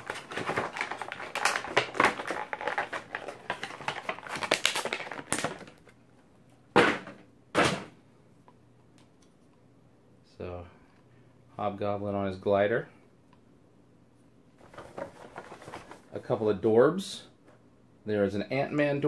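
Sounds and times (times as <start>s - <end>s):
plastic bag crinkling: 0.0s - 5.9s.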